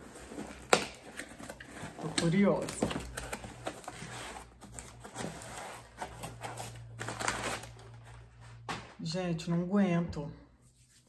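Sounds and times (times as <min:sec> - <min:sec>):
gift packaging rustling and crinkling: 0:00.0 - 0:09.0.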